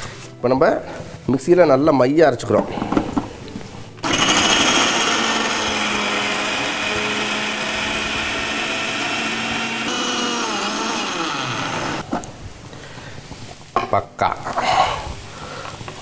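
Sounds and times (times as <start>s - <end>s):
mixer grinder running: 4.0s - 12.0s.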